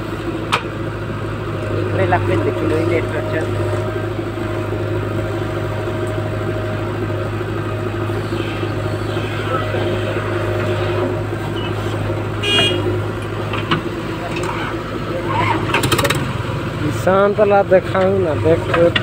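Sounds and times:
diesel engine running under load: 0.0 - 19.0
backhoe digging soil: 1.6 - 16.4.

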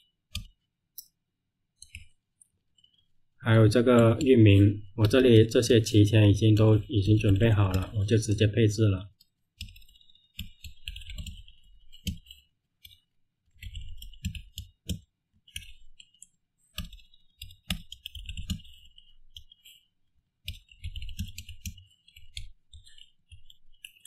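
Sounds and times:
keyboard typing: 0.0 - 0.6, 1.8 - 2.2, 3.6 - 8.5, 9.1 - 24.0.

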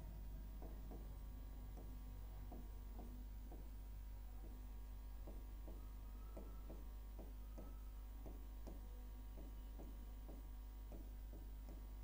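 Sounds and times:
steady low hum: 0.0 - 12.0
chalk striking a blackboard: 5.2 - 11.9.

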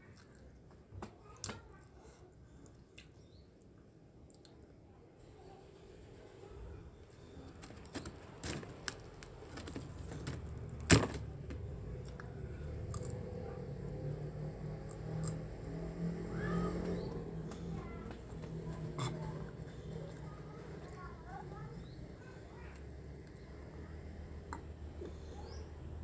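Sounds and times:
crunching crisp crackers: 7.1 - 13.7, 14.6 - 15.6.

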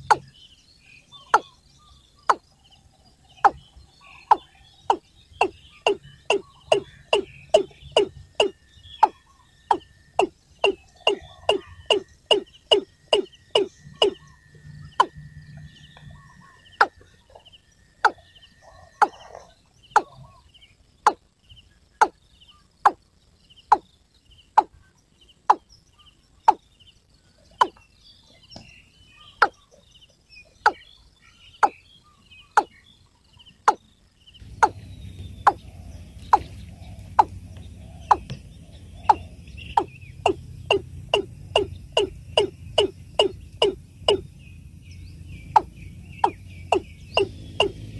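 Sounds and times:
bird calling sharp kok notes: 0.0 - 0.3, 3.4 - 14.3, 34.4 - 44.3, 45.4 - 47.9
low hum and hiss: 0.0 - 47.9.

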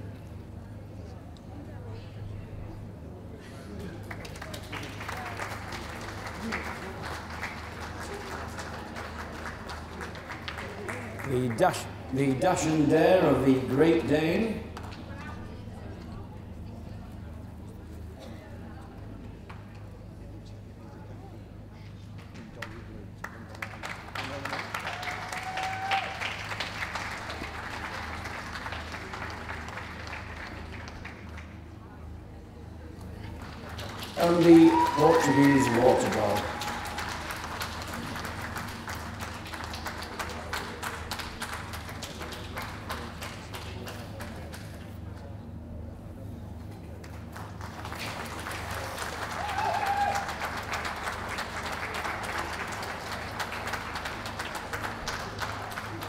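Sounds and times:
audience applauding: 3.8 - 15.0, 22.2 - 31.7, 33.3 - 44.8, 47.0 - 56.0.

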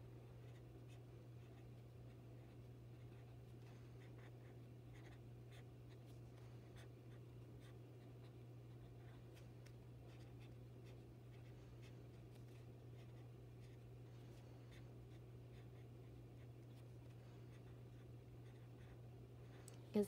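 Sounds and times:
steady low hum: 0.0 - 20.0
marker scratching on paper: 4.0 - 6.1.

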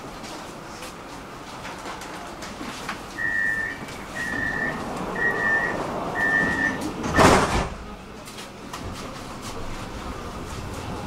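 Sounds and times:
low rumble of tram: 0.0 - 11.0
high warning beeps: 3.2 - 7.3.

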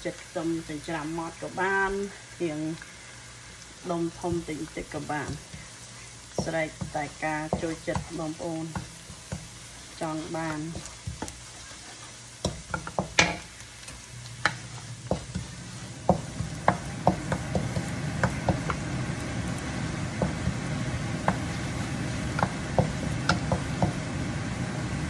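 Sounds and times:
ingredients sizzling in pan: 0.0 - 25.0.

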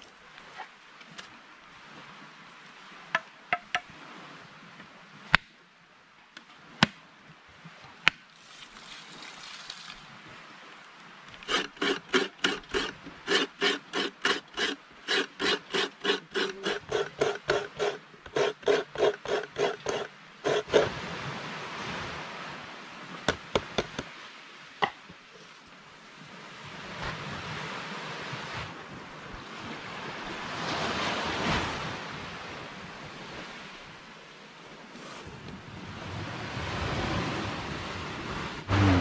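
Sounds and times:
hand scraping strokes rasping: 11.4 - 20.9, 38.7 - 39.0.

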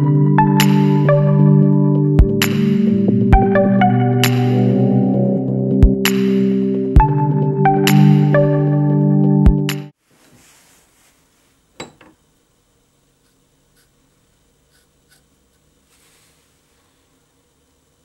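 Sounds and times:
music: 0.0 - 9.9
pen scratching on wood: 13.2 - 14.0, 14.7 - 15.6.

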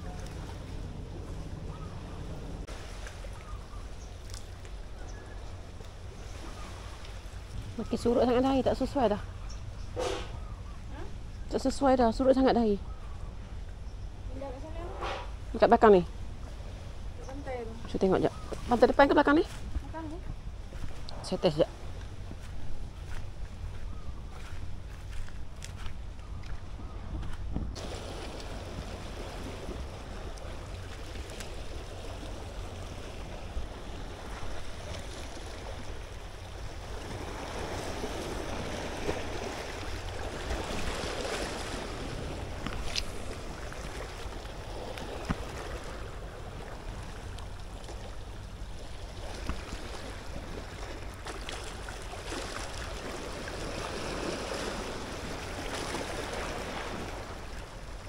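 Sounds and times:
sea water lapping: 0.0 - 58.0
wind rumble on microphone: 0.0 - 58.0.

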